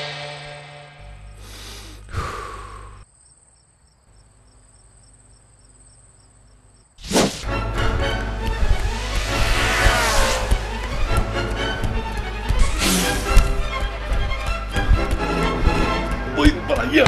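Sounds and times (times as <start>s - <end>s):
crickets chirping: 1.3s - 7.0s
loud rush of sound: 8.8s - 11.0s
whoosh falling in pitch: 8.8s - 11.0s.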